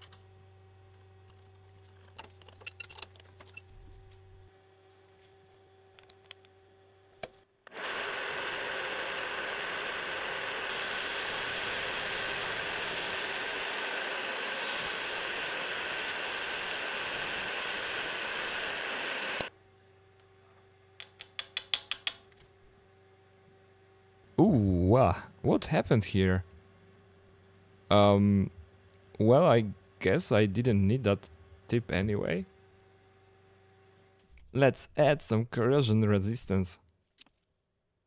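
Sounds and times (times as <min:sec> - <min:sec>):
milling machine cutting with whine: 0:07.7 - 0:19.5.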